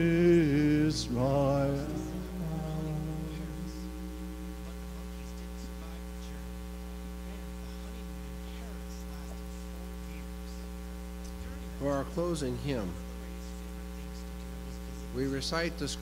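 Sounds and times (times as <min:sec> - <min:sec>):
electrical mains hum: 0:00.0 - 0:16.0.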